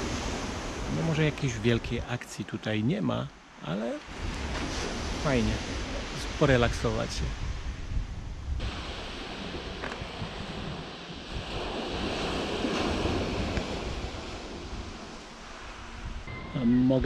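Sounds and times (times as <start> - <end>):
wind rumbling on microphone: 4.0 - 17.0
surf breaking on pebble beach: 8.6 - 16.0.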